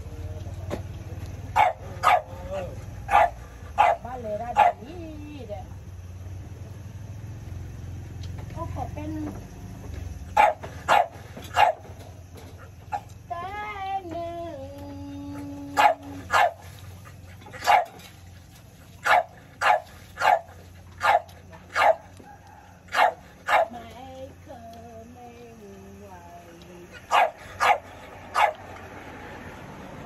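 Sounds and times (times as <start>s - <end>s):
dog barking: 1.5s - 4.9s, 10.3s - 12.0s, 15.7s - 16.6s, 17.4s - 18.1s, 19.0s - 23.8s, 27.0s - 28.7s.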